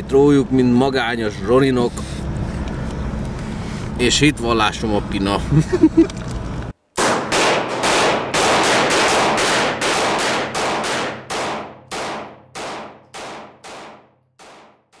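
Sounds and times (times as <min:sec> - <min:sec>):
gunshots ringing out: 0:07.0 - 0:15.0.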